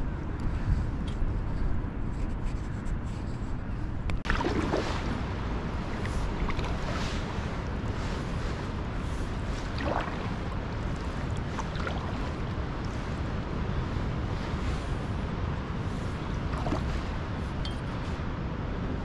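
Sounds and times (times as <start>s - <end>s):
wind rumbling on microphone: 0.0s - 19.0s
water washing: 4.2s - 13.1s.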